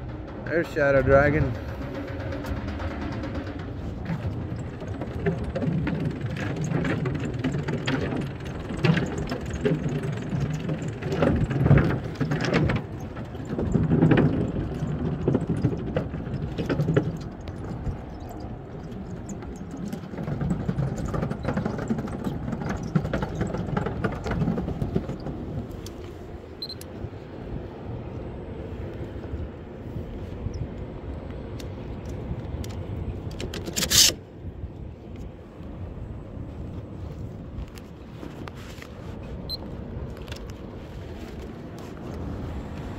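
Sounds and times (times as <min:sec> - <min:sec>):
boards knocking and clattering: 0:00.0 - 0:25.7
wheels rumbling over wooden planks: 0:00.0 - 0:42.9.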